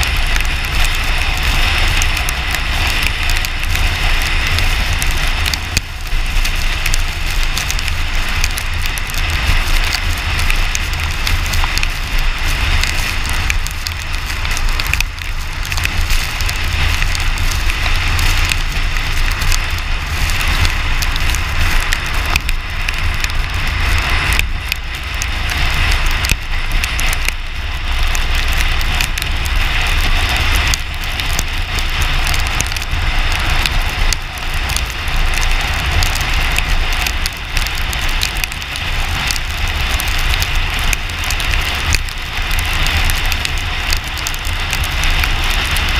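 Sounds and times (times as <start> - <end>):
car wind and road noise: 0.0 - 45.9.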